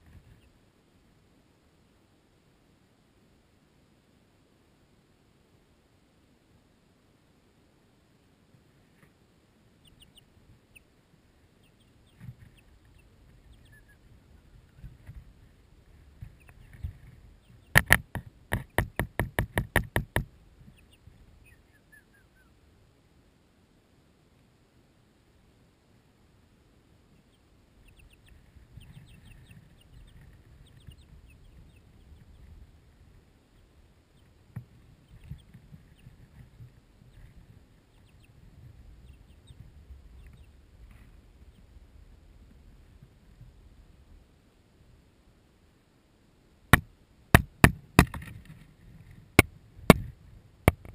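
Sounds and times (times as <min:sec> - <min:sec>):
chicks peeping: 0:09.8 - 0:10.9, 0:11.6 - 0:15.2, 0:16.2 - 0:22.5, 0:27.1 - 0:41.7
sharp tap: 0:17.7 - 0:20.3, 0:46.7 - 0:48.3, 0:50.7 - 0:50.9.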